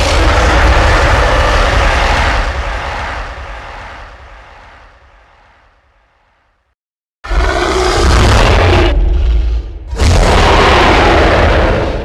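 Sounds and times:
deep rumbling roar: 0.0 - 4.4, 7.2 - 12.0.

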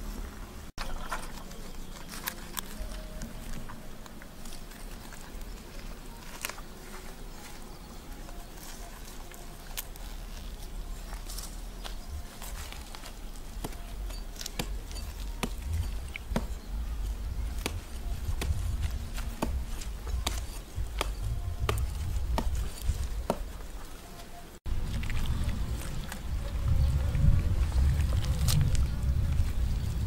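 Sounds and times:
low rumble: 24.7 - 30.0.

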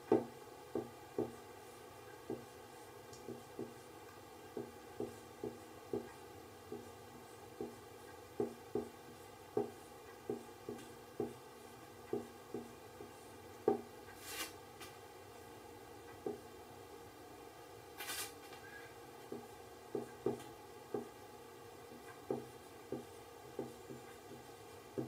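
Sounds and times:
marker pen tapping on whiteboard: 0.1 - 1.4, 2.2 - 2.5, 3.2 - 3.8, 4.5 - 6.9, 7.6 - 7.8, 8.4 - 11.4, 12.1 - 13.9, 16.1 - 16.4, 19.3 - 21.2, 22.0 - 25.0.

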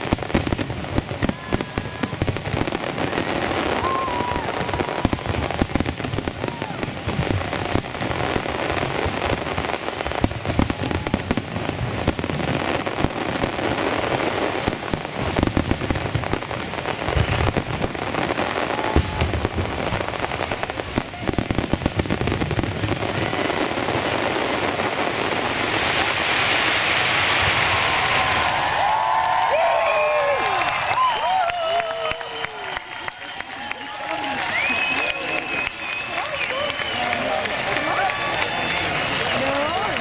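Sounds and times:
firework crackle: 0.0 - 40.0
crowd applauding and cheering: 3.1 - 7.5, 27.4 - 40.0.

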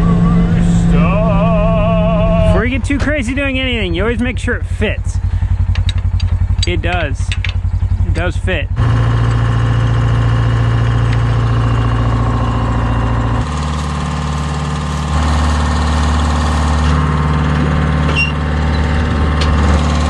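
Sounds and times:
tractor engine idling: 0.0 - 20.0.

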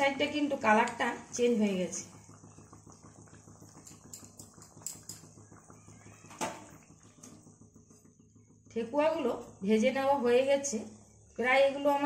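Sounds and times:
food sizzling in hot oil: 0.0 - 12.0
oil popping: 0.0 - 12.0.

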